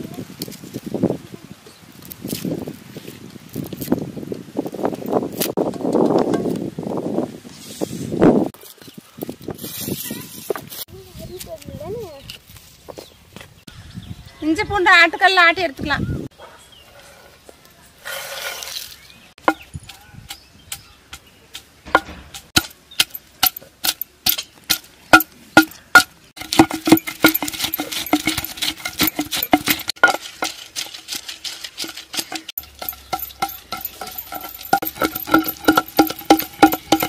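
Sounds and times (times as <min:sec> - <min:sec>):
pestle pounding in stone mortar: 0:19.4 - 0:37.0.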